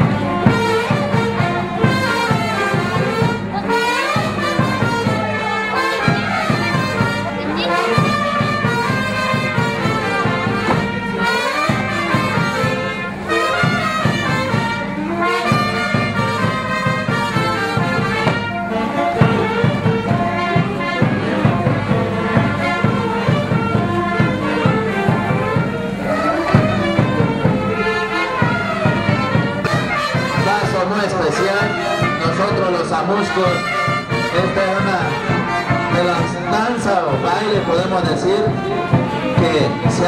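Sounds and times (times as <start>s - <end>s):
brass band dance music: 0.0s - 40.0s.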